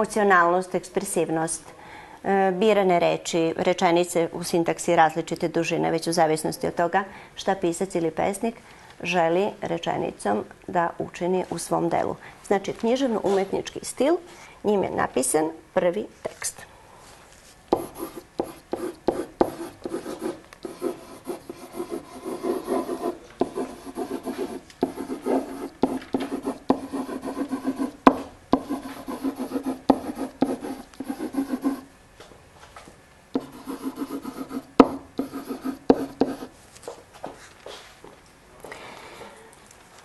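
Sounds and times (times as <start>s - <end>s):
pen tapping on board: 17.8s - 20.1s, 22.7s - 31.8s, 33.4s - 36.5s
pen writing on whiteboard: 17.8s - 31.9s, 33.4s - 36.5s.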